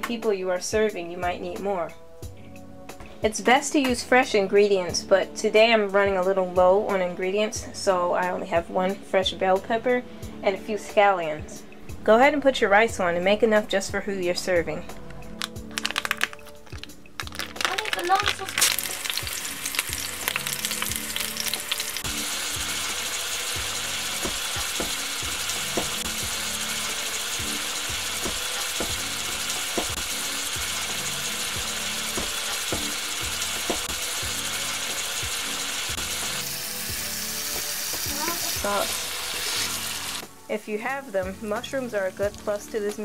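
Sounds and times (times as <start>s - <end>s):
meat sizzling in a pan: 17.3s - 40.4s.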